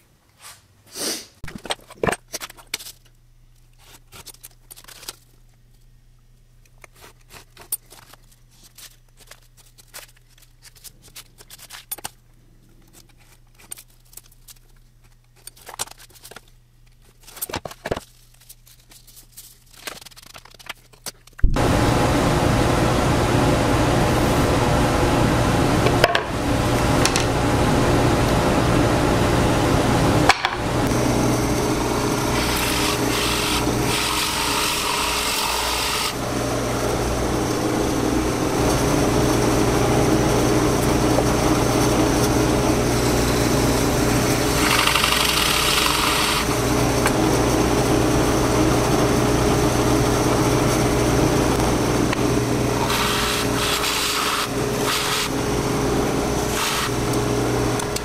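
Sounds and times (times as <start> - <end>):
drill press boring wood: 30.9 - 40.3, 43.6 - 47.2, 51.6 - 58.0.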